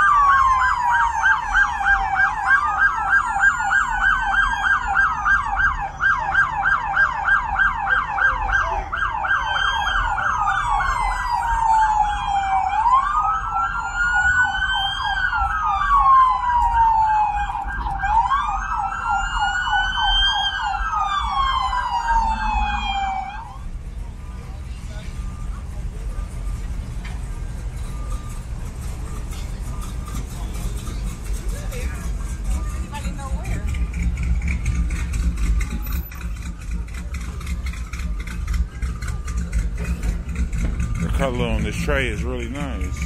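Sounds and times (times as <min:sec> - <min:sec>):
police siren yelping: 0:00.0 - 0:24.5, 0:33.8 - 0:43.0
police siren wailing: 0:00.0 - 0:26.5, 0:33.6 - 0:43.0
rumble of cars: 0:00.0 - 0:43.0.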